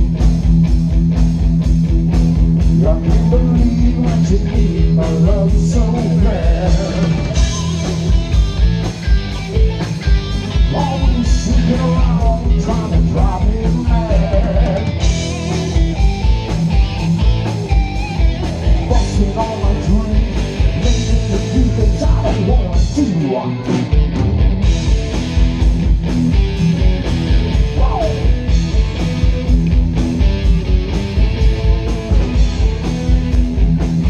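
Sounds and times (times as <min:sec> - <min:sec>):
distorted electric guitars: 0:00.0 - 0:34.0
person singing: 0:02.8 - 0:08.0, 0:10.6 - 0:15.7, 0:18.4 - 0:23.8, 0:27.5 - 0:28.4.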